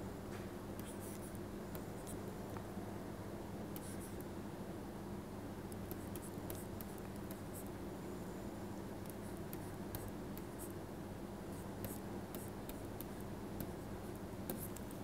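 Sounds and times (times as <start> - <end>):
low steady hum: 0.0 - 15.0
stylus scratching and tapping screen: 0.8 - 2.2, 14.5 - 15.0.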